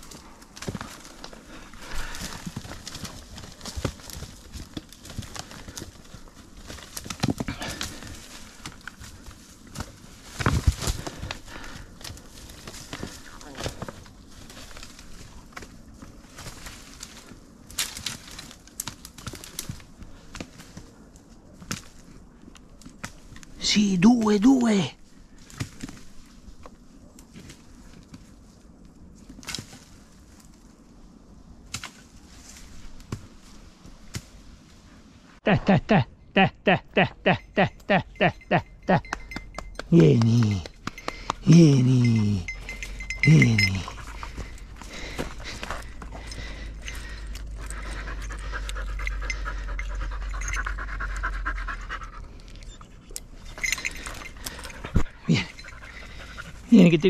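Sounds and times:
dog panting: 0:42.1 - 0:57.0.

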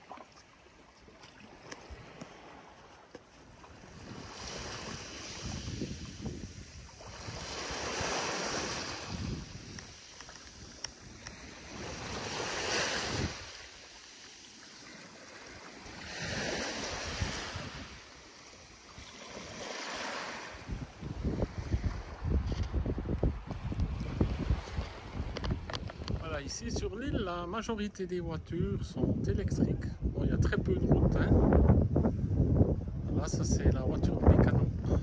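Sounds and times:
small waves washing ashore: 0:00.0 - 0:26.5
wind rumbling on microphone: 0:03.5 - 0:13.8, 0:15.8 - 0:18.2, 0:18.9 - 0:35.0.

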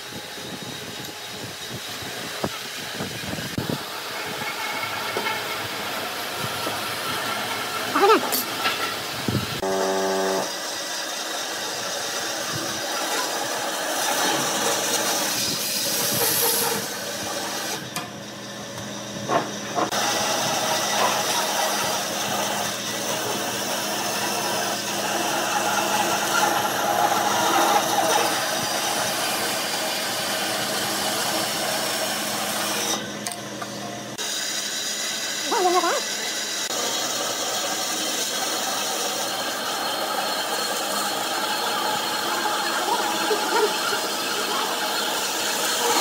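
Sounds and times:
motor hum: 0:07.9 - 0:10.9.

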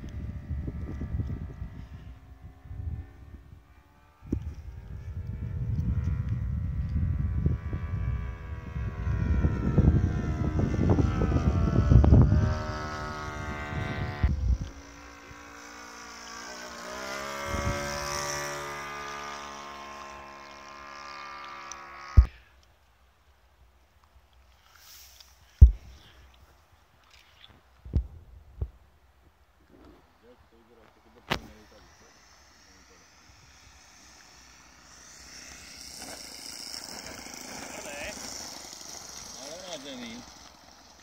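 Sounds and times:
wind buffeting microphone: 0:00.0 - 0:15.5, 0:17.4 - 0:18.8
model airplane engine: 0:00.0 - 0:22.8, 0:29.6 - 0:41.0.

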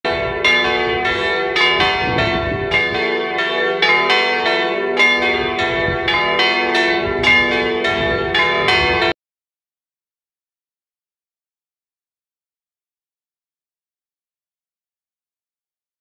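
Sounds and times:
church bells pealing: 0:00.1 - 0:09.2.

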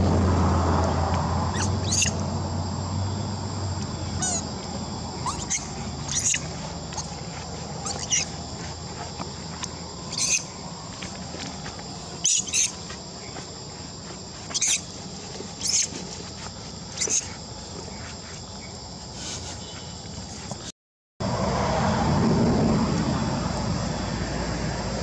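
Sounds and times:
high-pitched insect drone: 0:00.1 - 0:20.4
sharp high-pitched squeaks: 0:01.5 - 0:02.2, 0:04.1 - 0:04.5, 0:05.2 - 0:07.2, 0:07.8 - 0:08.4, 0:10.1 - 0:10.5, 0:12.2 - 0:12.8, 0:14.5 - 0:14.9, 0:15.6 - 0:16.0, 0:17.0 - 0:17.4.

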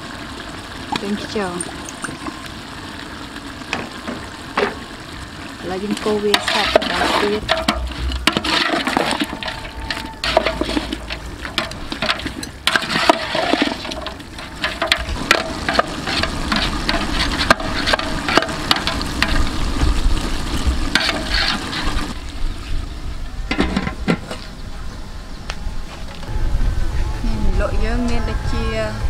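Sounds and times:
utensil scraping metal pot: 0:05.8 - 0:22.2
stew sloshing in metal pot: 0:05.9 - 0:22.2.

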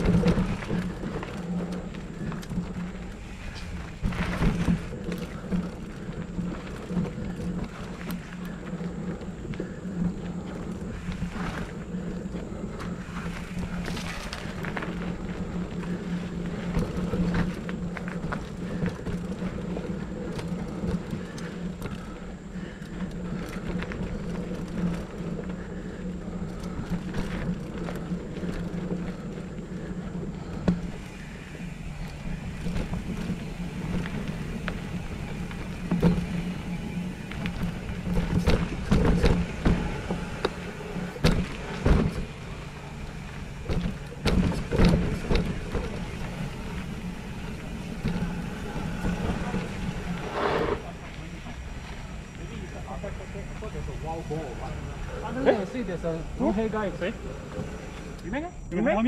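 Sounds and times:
bike rattling and knocking: 0:00.0 - 0:59.0
bike tyres rolling over dirt: 0:00.0 - 0:59.0
steady low hum: 0:00.0 - 0:59.0.

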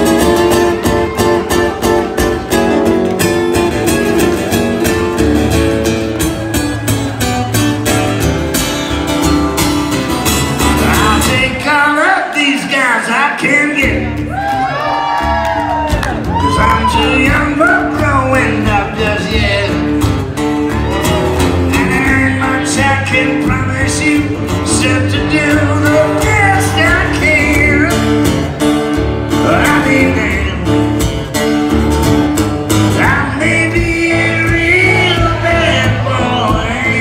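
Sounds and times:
acoustic guitars: 0:00.0 - 0:37.0
man singing: 0:10.6 - 0:14.4, 0:16.4 - 0:20.1, 0:21.5 - 0:28.3, 0:29.3 - 0:31.0, 0:32.7 - 0:37.0.

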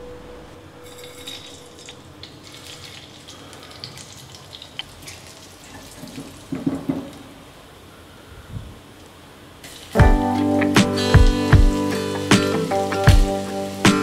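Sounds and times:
oil sizzling and crackling in a pan: 0:01.9 - 0:06.7, 0:09.6 - 0:14.0.

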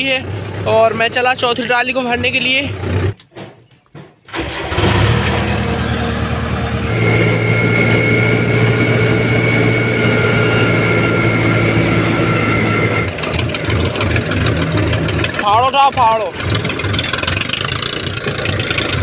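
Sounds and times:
tractor engine running with whine: 0:00.0 - 0:03.4, 0:04.2 - 0:19.0
tractor diesel engine starting: 0:00.0 - 0:19.0.

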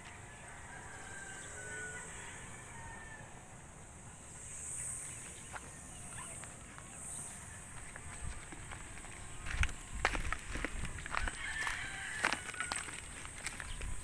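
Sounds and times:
high steady insect buzz: 0:03.4 - 0:09.7.

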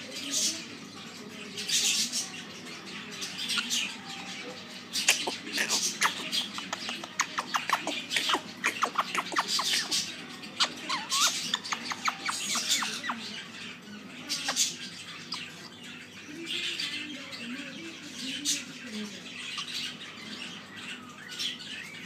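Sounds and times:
parakeet chirps and clicks: 0:04.9 - 0:13.3, 0:14.3 - 0:15.7.

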